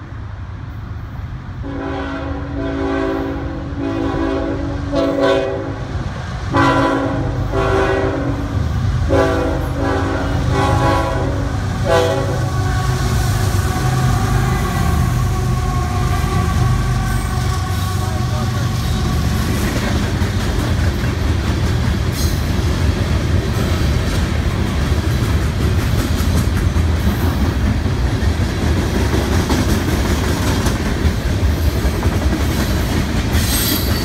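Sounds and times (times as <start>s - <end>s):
diesel locomotives rumbling: 0.0s - 34.0s
train wheels on rails: 0.0s - 34.0s
locomotive horn blasts: 1.6s - 5.9s, 6.5s - 19.1s.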